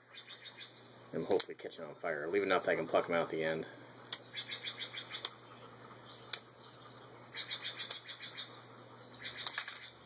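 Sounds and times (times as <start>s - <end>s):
high chirping: 4.2s - 10.0s
wooden skewers snapping: 6.3s - 6.5s, 7.8s - 8.0s.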